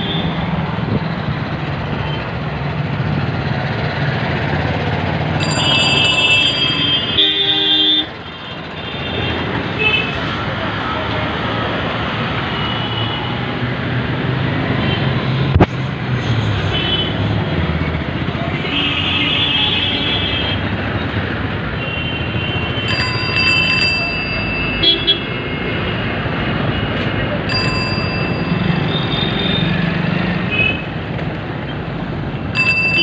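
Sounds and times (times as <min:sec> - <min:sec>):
passing motor vehicles: 0:00.0 - 0:33.0
car horns tooting: 0:05.4 - 0:10.2, 0:24.7 - 0:25.9.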